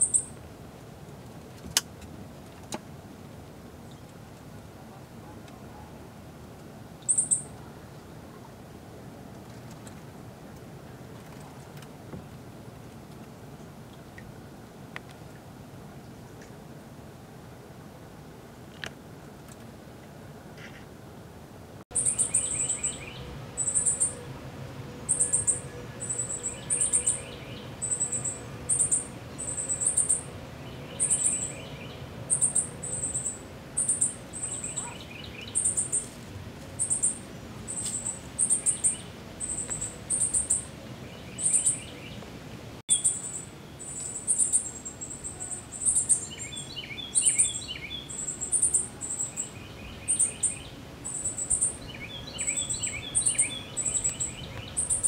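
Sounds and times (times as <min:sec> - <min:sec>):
high sharp bird chirp: 0:21.9 - 0:24.2, 0:25.1 - 0:30.3, 0:30.9 - 0:31.7, 0:42.9 - 0:49.5
lower trilled call: 0:21.9 - 0:36.0, 0:42.9 - 0:55.0.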